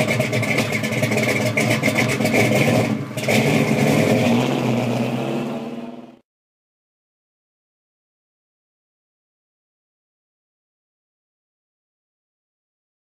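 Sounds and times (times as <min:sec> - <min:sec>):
car engine revving: 0:00.0 - 0:06.2.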